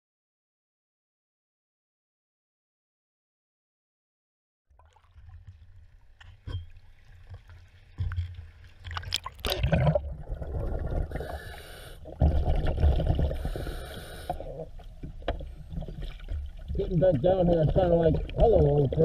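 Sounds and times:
water lapping and splashing: 4.7 - 19.0
muffled underwater rushing: 4.9 - 19.0.

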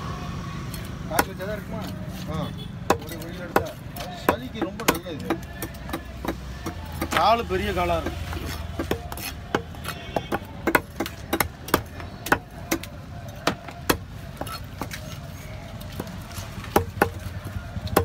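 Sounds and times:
knife chopping on wooden block: 2.9 - 15.0, 16.0 - 18.0.

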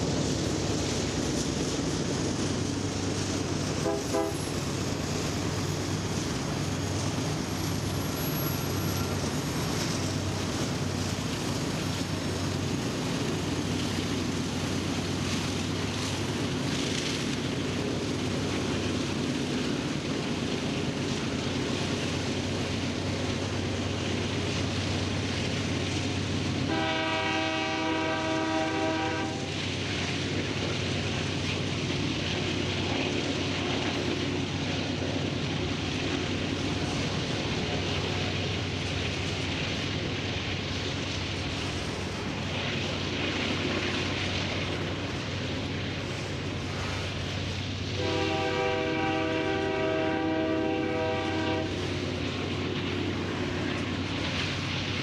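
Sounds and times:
freight train rumbling past: 0.0 - 55.0
train air horn: 3.8 - 4.5, 26.7 - 29.5, 48.0 - 51.8.

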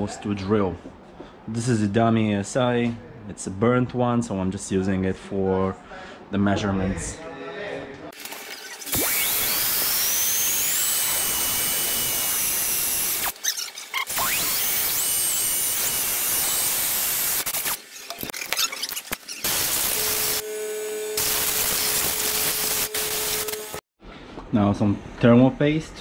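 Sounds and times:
drill boring through metal: 8.2 - 23.8.

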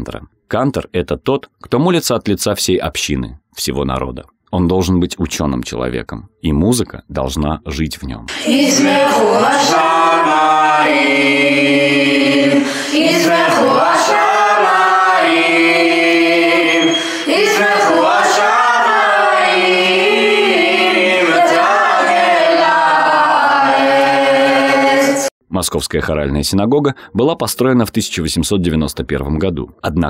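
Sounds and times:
boys' choir singing: 8.3 - 25.3.

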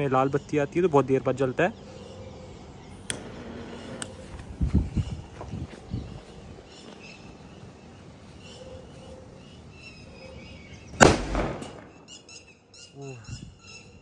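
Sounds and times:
firecracker bang with echo: 11.0 - 12.0.

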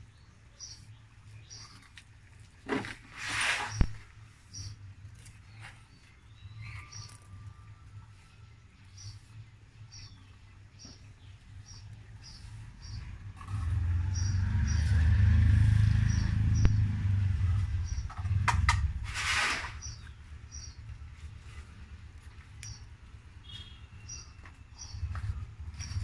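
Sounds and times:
loud low rumble: 13.0 - 19.2.

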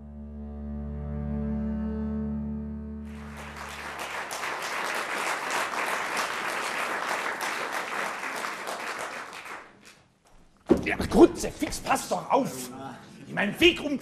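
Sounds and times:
double basses bowing a chord: 0.0 - 3.6
audience applause: 3.1 - 10.0.

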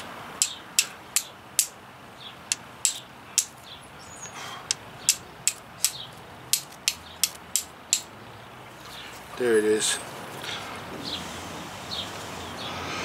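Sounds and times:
steel striker clicking on flint: 0.4 - 1.8, 2.5 - 3.6, 4.7 - 8.1.

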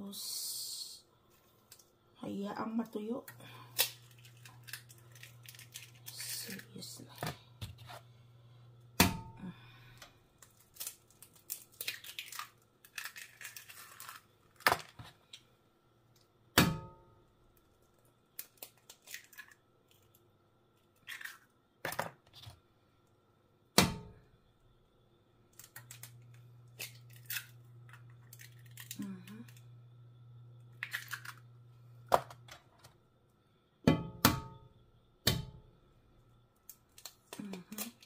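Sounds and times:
low steady hum: 0.0 - 21.0, 22.6 - 38.0
eggshells cracking: 3.3 - 6.8, 9.9 - 15.0, 17.6 - 20.2, 20.8 - 21.9, 25.5 - 29.7, 30.6 - 31.6, 36.6 - 38.0
shells tearing apart: 3.6 - 6.6, 10.4 - 14.9, 18.4 - 20.1, 21.0 - 21.5, 25.5 - 29.6, 30.8 - 31.4, 36.6 - 38.0.

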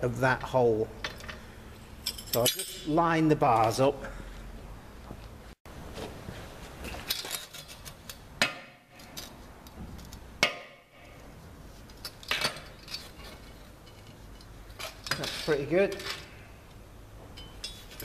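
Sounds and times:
steel chain bars clanking: 2.0 - 3.0
sharp metal knocks: 8.4 - 9.0, 10.4 - 10.9.

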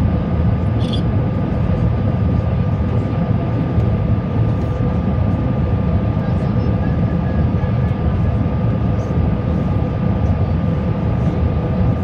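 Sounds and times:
steady whine: 0.0 - 5.6
aircraft cabin engine rumble: 0.0 - 12.0.

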